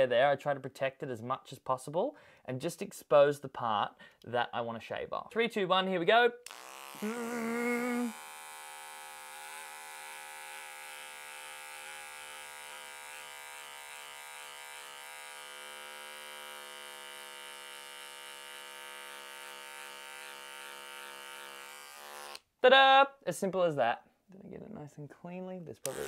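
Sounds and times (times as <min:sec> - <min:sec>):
beard trimmer buzzing: 0:06.4 - 0:22.5.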